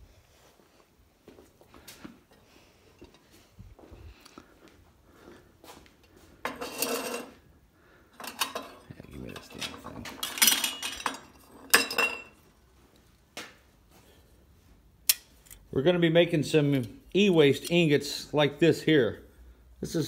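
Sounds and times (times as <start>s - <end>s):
metal tools clattering: 6.4s - 7.4s, 8.2s - 12.4s, 16.8s - 18.1s
glass jars clinking: 8.2s - 12.4s.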